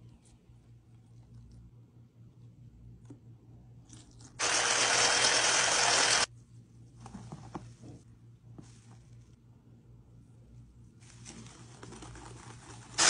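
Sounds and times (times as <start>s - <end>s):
electric hand mixer running: 4.4s - 6.3s.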